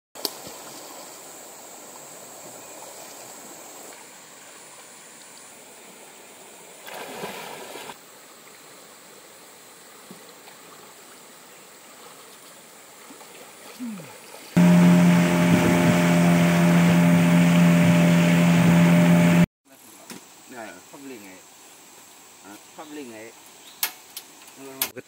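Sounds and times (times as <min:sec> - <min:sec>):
river running over stones: 0:00.2 - 0:19.2
swimmer splashing in water: 0:13.8 - 0:19.5.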